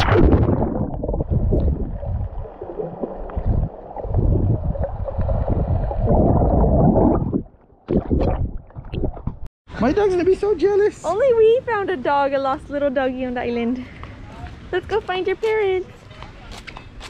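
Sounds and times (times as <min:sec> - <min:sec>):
muffled underwater water sloshing: 0:00.0 - 0:09.5
water splashes: 0:00.0 - 0:09.5.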